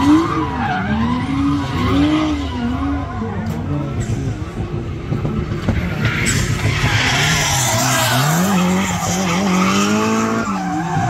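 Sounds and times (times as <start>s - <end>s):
car engine at high revs: 0.0s - 11.0s.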